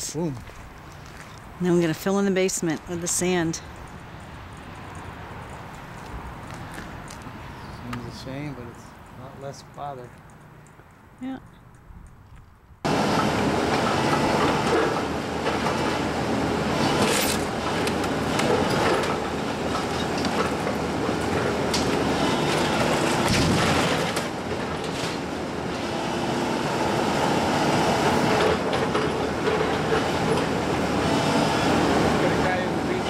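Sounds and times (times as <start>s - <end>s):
excavator diesel engine under load: 12.9s - 33.0s
splintering timber crashes: 21.8s - 25.2s.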